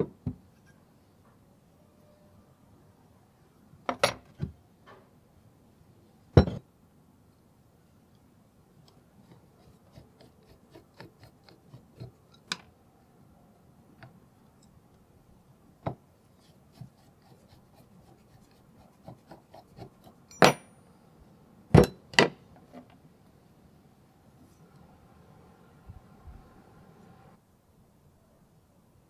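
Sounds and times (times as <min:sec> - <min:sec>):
metal parts knocking on wooden bench: 0:06.4 - 0:06.6.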